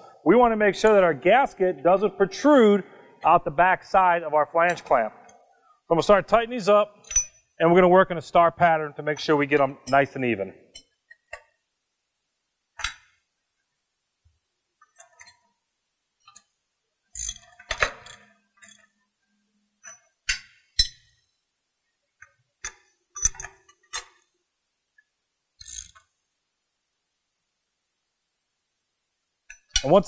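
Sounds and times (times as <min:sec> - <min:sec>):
wrench clicking on metal nuts: 0:17.1 - 0:19.0.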